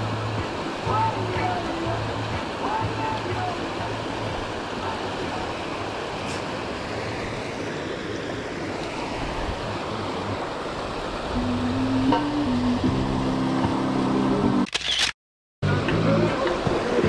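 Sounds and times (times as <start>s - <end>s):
river rapids rushing over rocks: 0.0s - 11.4s, 16.0s - 17.0s.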